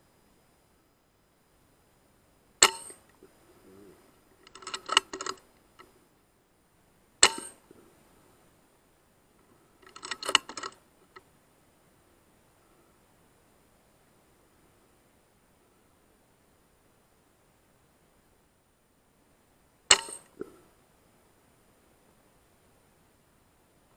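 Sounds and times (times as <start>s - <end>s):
metallic clicks: 2.6s - 3.2s, 4.4s - 5.9s, 7.2s - 7.6s, 9.8s - 11.2s, 19.9s - 20.5s
air rifle shot crack: 7.2s - 7.6s, 19.9s - 20.5s.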